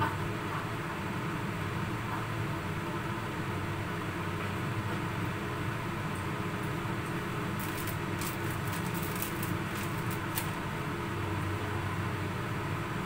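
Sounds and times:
exhaust fan humming: 3.4 - 13.0
faint high crackles: 7.6 - 10.6.

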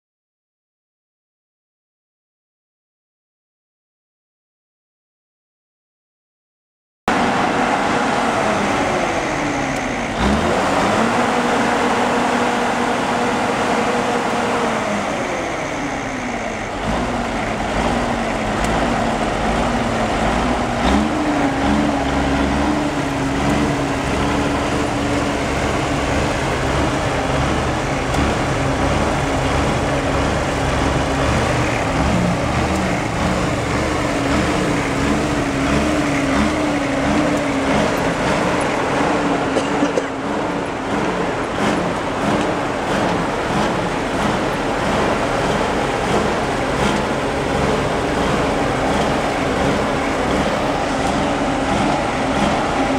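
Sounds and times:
diesel tractor engine running: 7.1 - 52.9.

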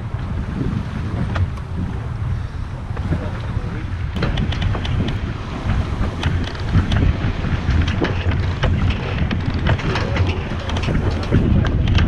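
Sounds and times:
wind buffeting microphone: 0.0 - 12.0
winch pawls clicking: 6.0 - 12.0.

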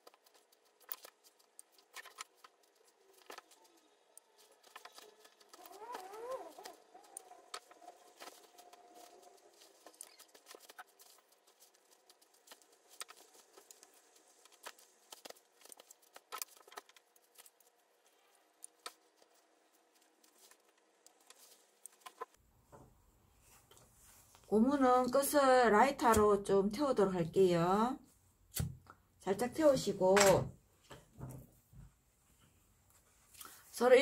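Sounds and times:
fabric rustling: 4.4 - 22.4.

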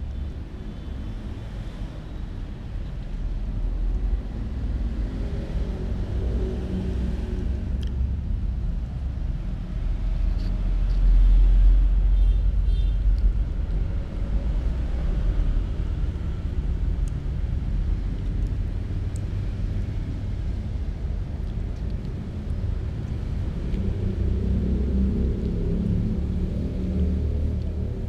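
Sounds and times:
kittens eating clicks: 21.4 - 22.3.

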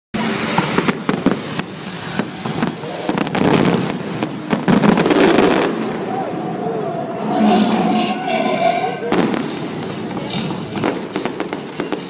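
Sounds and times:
fireworks bangs and crackles: 0.2 - 6.6, 8.2 - 12.0.

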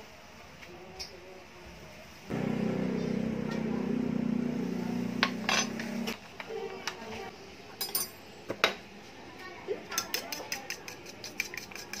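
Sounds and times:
steady low hum: 2.3 - 6.2.

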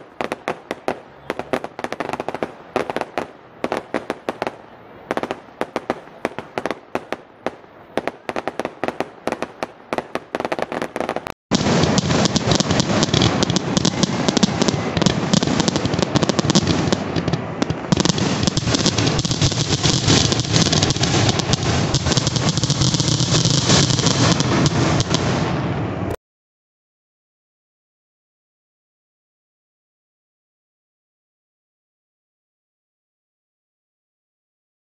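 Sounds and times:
fireworks crackling and banging: 0.0 - 26.2.

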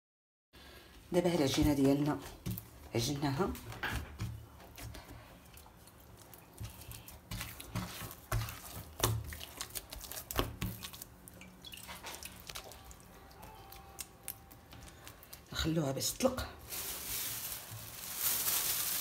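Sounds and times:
dough squelching and slapping: 1.2 - 13.4.

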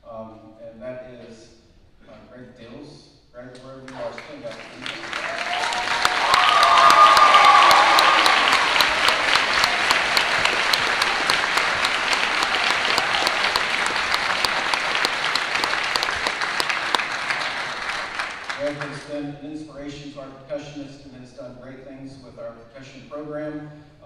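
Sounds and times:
audience applauding: 3.9 - 19.1
voices cheering: 4.2 - 18.9.

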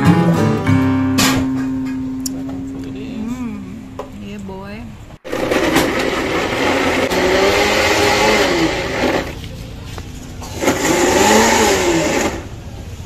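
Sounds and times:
electric blender running: 5.2 - 9.4, 10.5 - 12.5.

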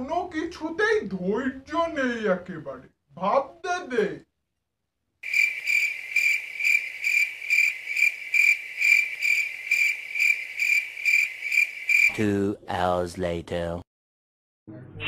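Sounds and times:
crickets chirping: 5.2 - 12.1.

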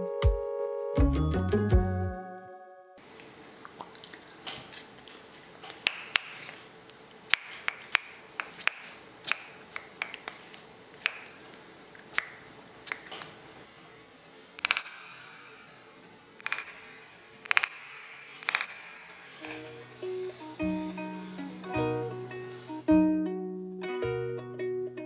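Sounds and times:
sharp clicks: 14.6 - 15.5, 16.4 - 19.6.

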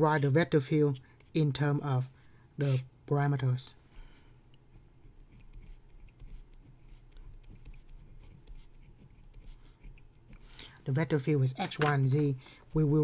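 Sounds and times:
pen scratching on paper: 4.7 - 10.5.

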